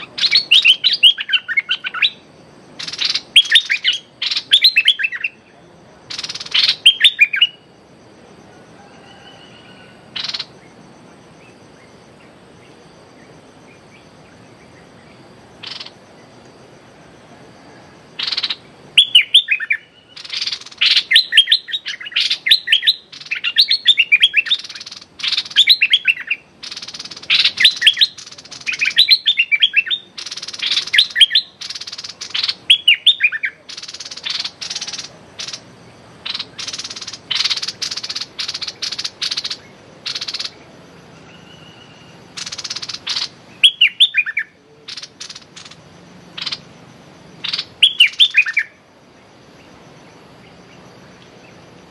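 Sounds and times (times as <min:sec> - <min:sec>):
bird calling and chattering: 0:00.0 - 0:07.8, 0:09.0 - 0:16.5, 0:18.1 - 0:51.9.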